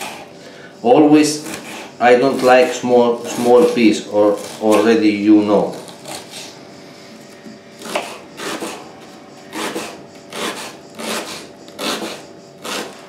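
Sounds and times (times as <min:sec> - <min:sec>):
knife chopping onion on board: 0:07.8 - 0:08.8, 0:09.5 - 0:13.0.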